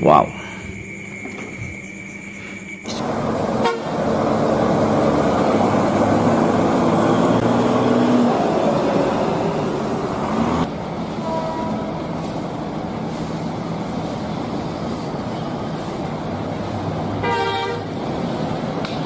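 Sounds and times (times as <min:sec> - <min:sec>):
diesel engine running: 0:02.8 - 0:17.3
vehicle horn: 0:03.1 - 0:05.0, 0:11.2 - 0:12.0, 0:17.2 - 0:18.0.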